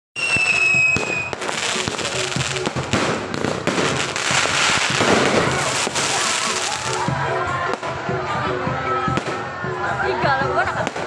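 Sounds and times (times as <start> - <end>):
firework high whistle: 0.2 - 2.6
fireworks bangs and crackles: 0.2 - 8.0, 8.6 - 9.6, 10.6 - 11.0.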